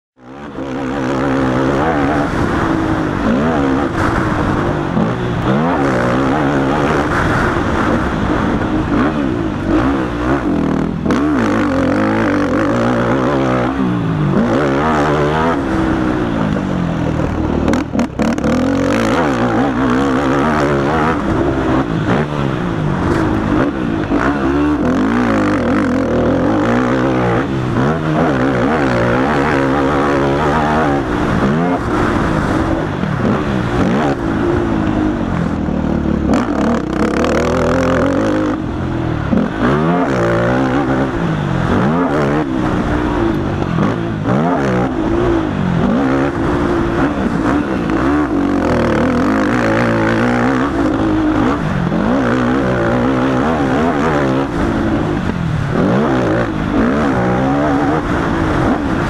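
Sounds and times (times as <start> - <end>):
quad engine revving: 0.2 - 59.0.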